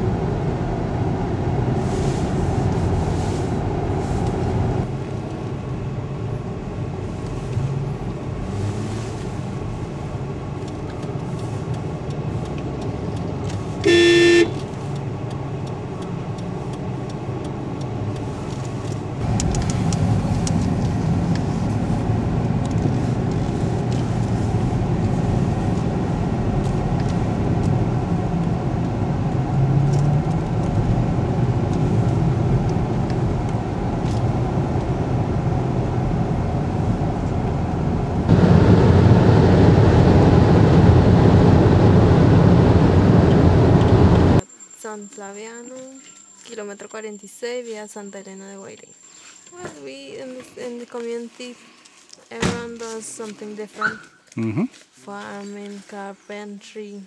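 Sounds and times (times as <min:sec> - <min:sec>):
vehicle road rumble: 0:00.0 - 0:57.0
car horn toot: 0:13.8 - 0:14.6.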